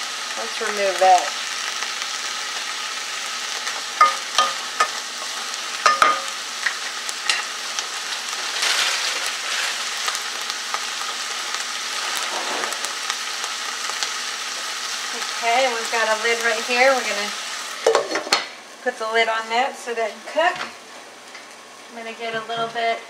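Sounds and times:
vegetables sizzling in butter: 0.0 - 23.0
wooden spoon knocking on pan: 5.8 - 6.3.

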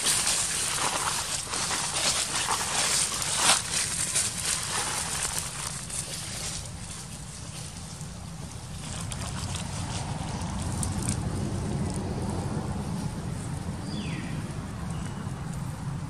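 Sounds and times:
dry leaves crackling: 0.0 - 15.3
steady low rumble: 0.0 - 16.0.

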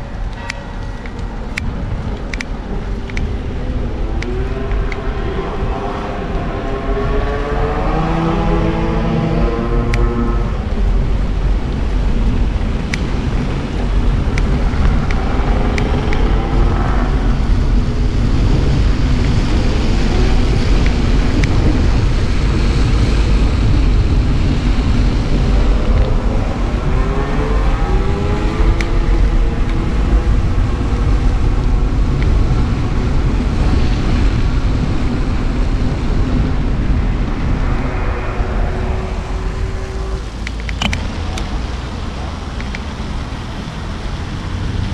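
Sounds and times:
wind rumbling on microphone: 0.0 - 44.9
rising pitched tone: 36.4 - 40.8.

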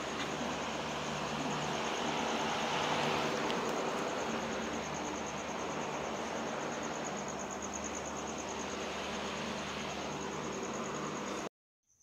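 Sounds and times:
constant hiss: 0.0 - 11.5
insects chirping: 0.0 - 12.0.

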